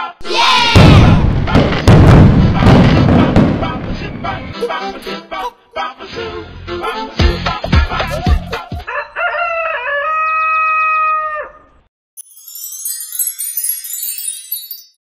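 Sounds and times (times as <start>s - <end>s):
music beats: 6.9s - 8.8s
rooster crowing: 8.8s - 11.8s
high sparkling chime shimmer: 12.2s - 15.0s.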